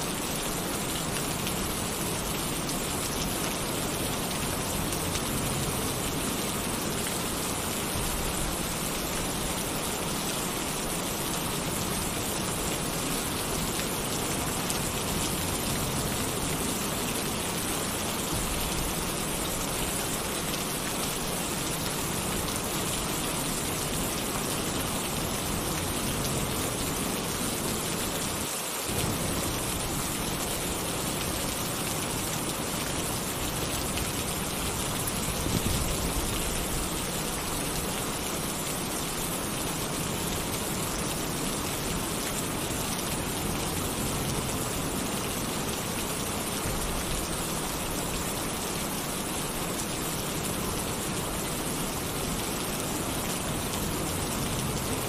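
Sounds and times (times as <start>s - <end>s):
heavy rain on a tin roof: 0.0s - 55.0s.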